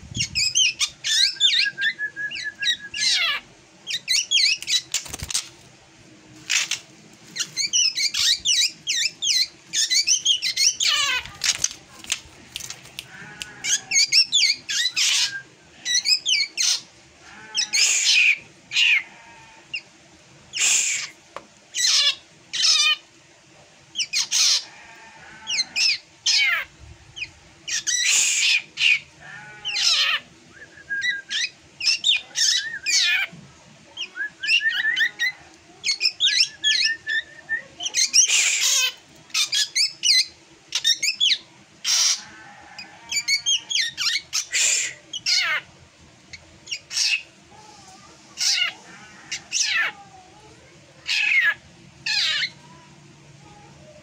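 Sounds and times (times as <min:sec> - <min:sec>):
bird squawking and chirping: 0:00.2 - 0:05.5, 0:06.5 - 0:06.8, 0:07.4 - 0:11.8, 0:13.1 - 0:19.6, 0:20.5 - 0:21.2, 0:21.8 - 0:23.0, 0:24.0 - 0:30.3, 0:31.3 - 0:33.3, 0:34.5 - 0:45.7, 0:46.7 - 0:47.3, 0:48.4 - 0:50.0, 0:51.0 - 0:52.7.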